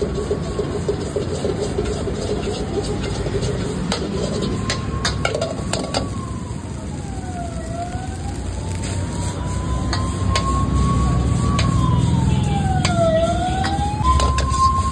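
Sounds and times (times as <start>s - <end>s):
gas burner rushing: 0.0s - 14.9s.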